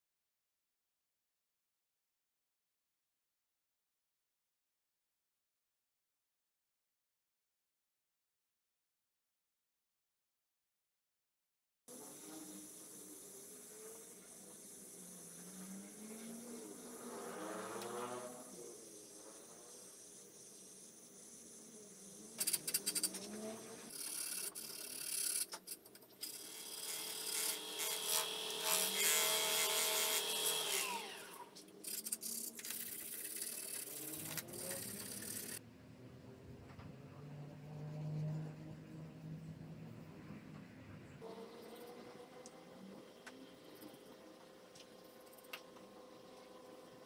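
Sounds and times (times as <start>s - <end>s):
rotary tool whine: 11.9s - 35.6s.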